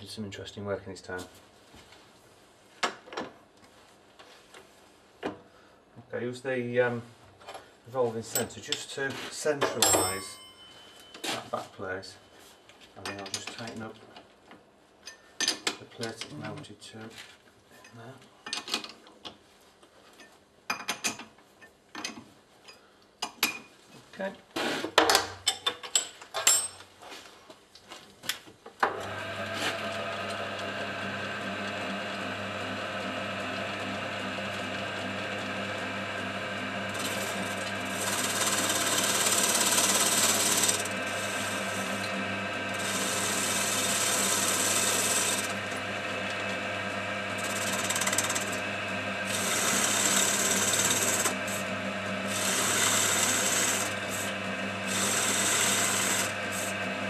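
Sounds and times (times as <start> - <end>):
lathe humming: 29.0 - 57.0
cutting tool scraping brass: 36.9 - 46.4, 47.4 - 48.6, 49.2 - 51.7, 52.3 - 56.8.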